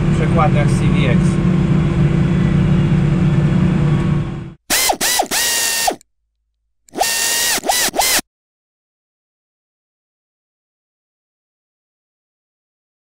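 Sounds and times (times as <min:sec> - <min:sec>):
ratcheting whirrs with swooping tones: 0:04.7 - 0:06.0, 0:06.9 - 0:08.2.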